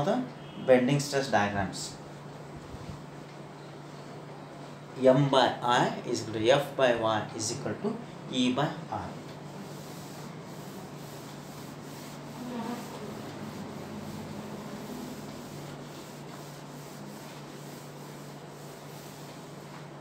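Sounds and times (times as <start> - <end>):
cloth rubbing on whiteboard: 1.7 - 3.4, 9.0 - 20.0.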